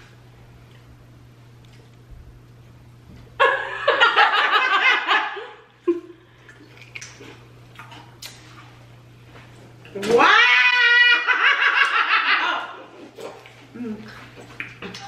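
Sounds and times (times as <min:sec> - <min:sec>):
loud laughter: 0:03.4 - 0:05.6, 0:10.7 - 0:12.9.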